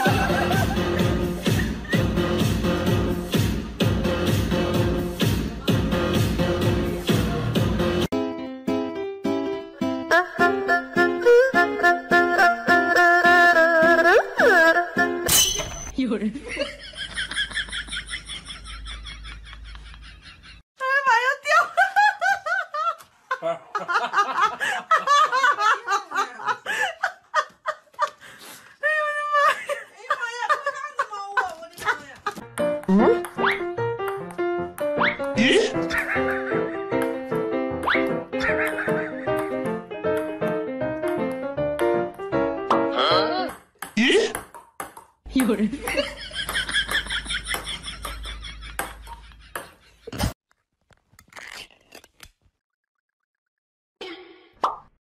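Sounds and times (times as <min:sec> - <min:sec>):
person laughing: 0:00.0 - 0:02.2, 0:35.4 - 0:36.8, 0:38.4 - 0:39.4, 0:44.0 - 0:44.4
lid peeled off cup: 0:50.9 - 0:52.5.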